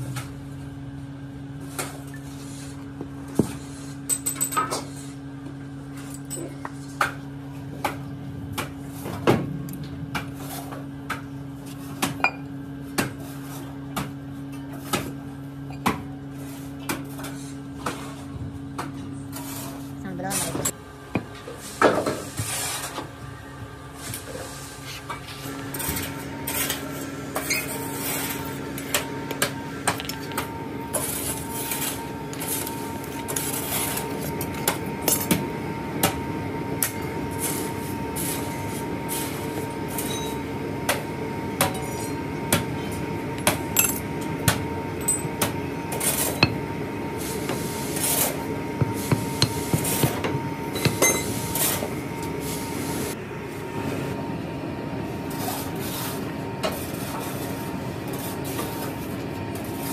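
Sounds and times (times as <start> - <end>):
steady machinery hum: 0.0 - 59.9.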